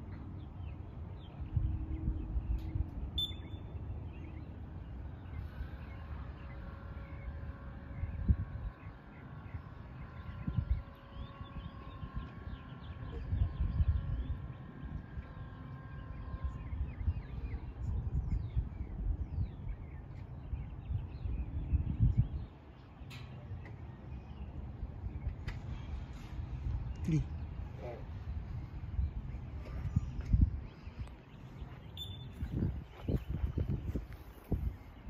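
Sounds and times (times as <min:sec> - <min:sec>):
small birds chirping: 0:00.0 - 0:35.0
low uneven rumble: 0:03.8 - 0:35.0
gate motor whining: 0:05.3 - 0:17.7.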